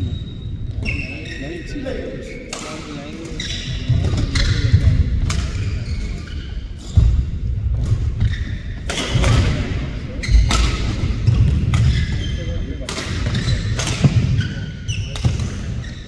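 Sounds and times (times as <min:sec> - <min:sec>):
rackets striking shuttlecock: 0:10.4 - 0:12.2, 0:12.8 - 0:14.4, 0:15.1 - 0:15.8.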